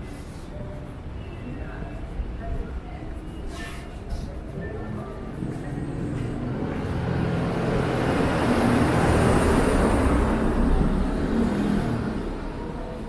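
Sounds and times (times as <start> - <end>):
vehicle passing by: 6.2 - 13.0.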